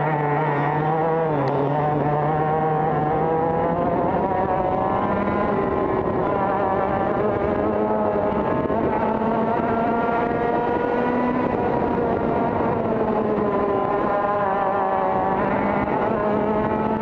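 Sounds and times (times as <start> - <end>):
two-stroke kart engine buzzing: 0.0 - 17.0.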